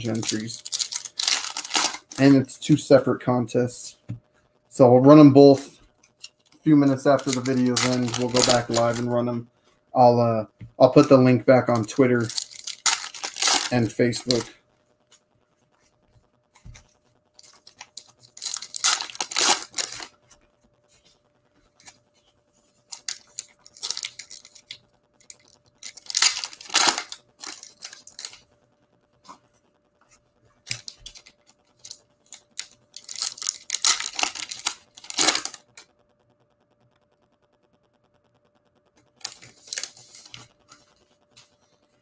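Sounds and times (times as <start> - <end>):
foil wrappers tearing and crinkling: 0.0 - 2.8, 6.2 - 9.3, 10.8 - 14.5, 17.4 - 20.1, 22.9 - 28.4, 30.7 - 35.8, 39.2 - 40.5.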